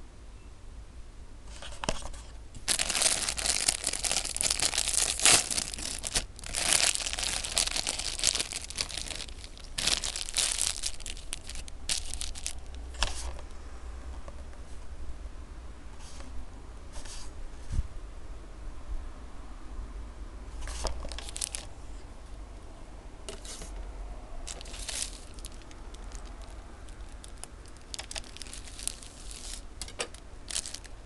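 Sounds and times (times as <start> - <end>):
plastic wrapper crinkling: 1.9 - 12.8, 20.7 - 21.7, 24.5 - 31.0.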